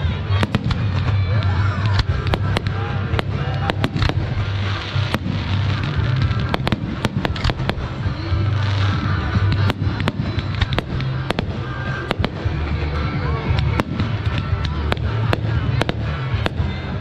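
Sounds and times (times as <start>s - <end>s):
fireworks bangs: 0.0s - 17.0s.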